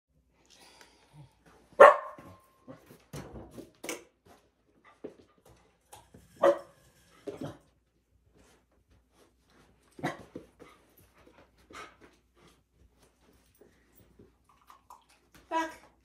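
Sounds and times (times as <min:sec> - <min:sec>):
dog barking: 0:01.8 - 0:02.4, 0:06.4 - 0:06.8.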